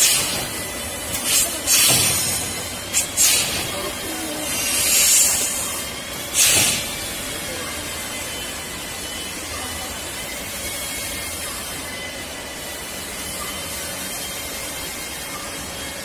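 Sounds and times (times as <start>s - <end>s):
compressed air hissing: 0.0s - 7.3s.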